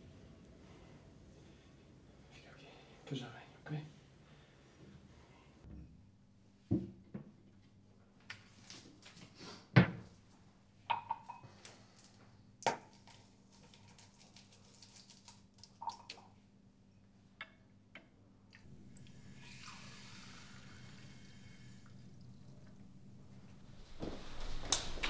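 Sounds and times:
dishes knocking and clinking: 0:10.9 - 0:11.5.

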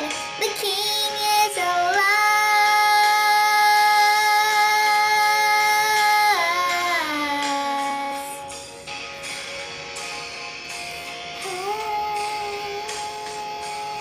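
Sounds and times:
high singing voice: 0:11.4 - 0:14.0.

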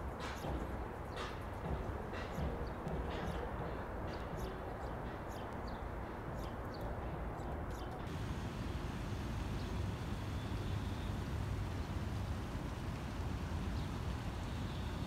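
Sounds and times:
distant traffic hum: 0:00.0 - 0:15.0
small birds chirping: 0:00.2 - 0:08.1.

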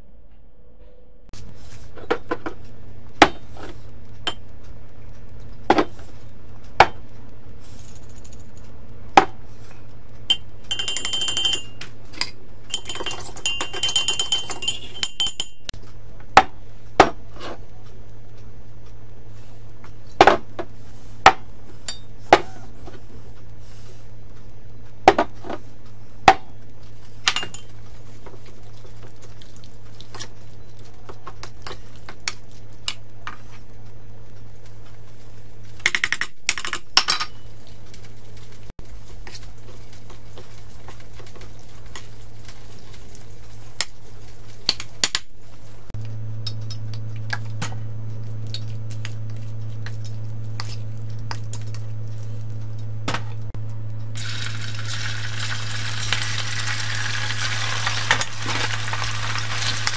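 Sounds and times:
steady low hum: 0:00.0 - 0:59.9
metal spoon clinking in steel bowl: 0:10.3 - 0:15.7
hot oil sizzling: 0:54.2 - 0:59.9.

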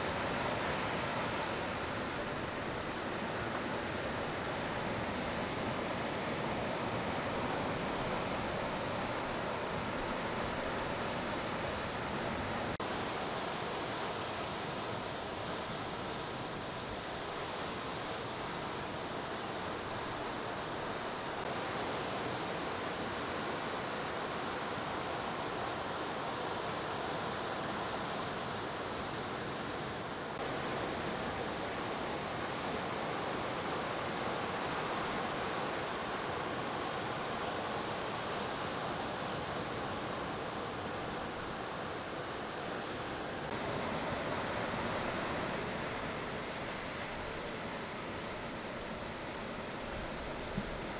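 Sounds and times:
ocean surf breaking: 0:29.5 - 0:50.9.

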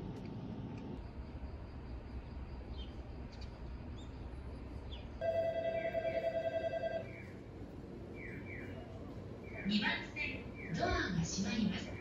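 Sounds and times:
low outdoor rumble: 0:00.0 - 0:12.0
pulsing electronic ringing tone: 0:05.2 - 0:07.1.

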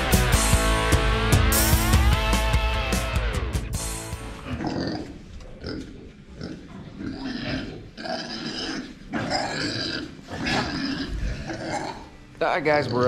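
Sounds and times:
pigs calling: 0:04.3 - 0:13.0.

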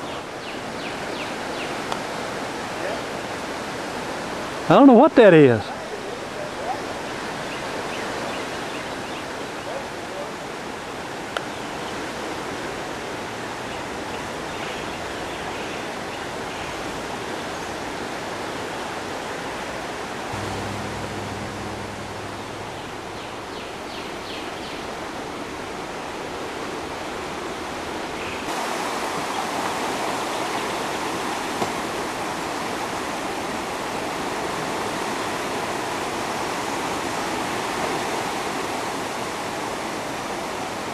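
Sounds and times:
low hum: 0:20.3 - 0:24.6.

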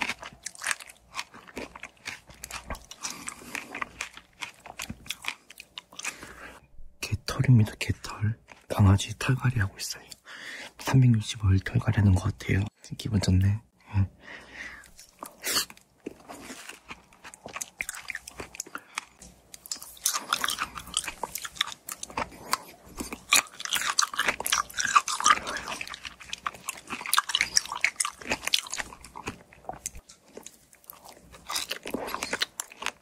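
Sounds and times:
wet chewing of fresh fruit: 0:00.0 - 0:06.6, 0:14.8 - 0:33.0.

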